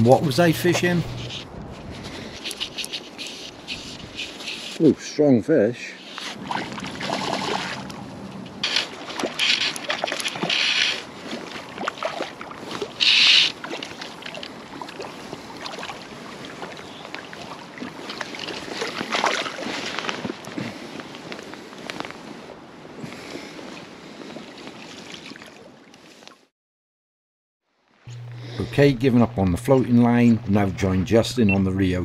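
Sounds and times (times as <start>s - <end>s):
fish splashing and thrashing: 6.0s - 22.4s, 23.2s - 26.4s.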